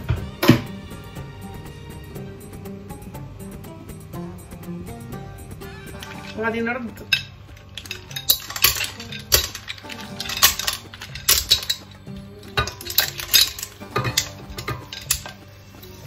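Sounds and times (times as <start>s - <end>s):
shellfish clattering into metal pot: 5.9s - 16.0s.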